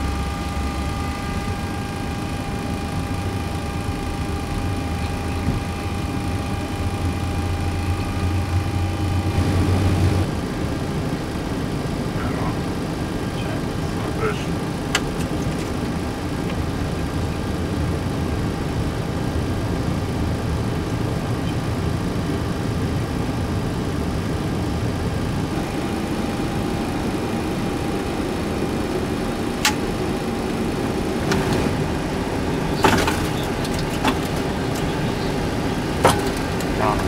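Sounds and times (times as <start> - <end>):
flight deck mechanical drone: 0.0 - 37.0
cockpit switches clicking: 14.9 - 15.9, 29.5 - 30.0.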